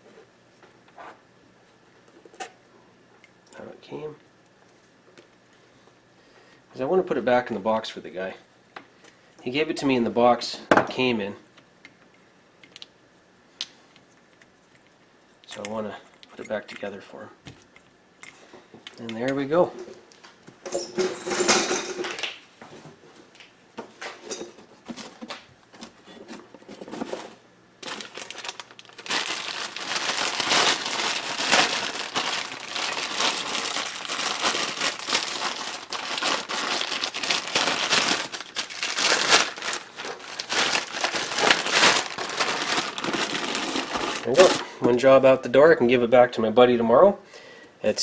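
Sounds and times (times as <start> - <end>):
plastic bag crinkling: 26.9 - 44.7.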